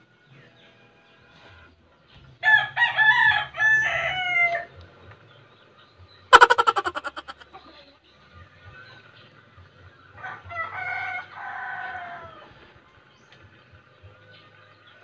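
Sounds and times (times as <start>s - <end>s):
rooster crowing: 6.3s - 7.3s.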